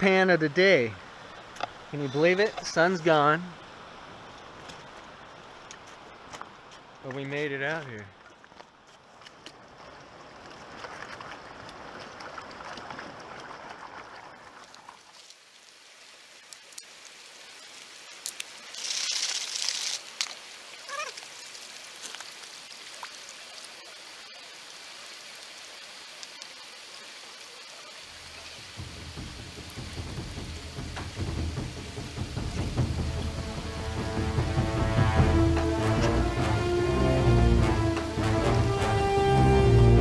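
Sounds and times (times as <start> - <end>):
running river water: 0.0 - 40.0.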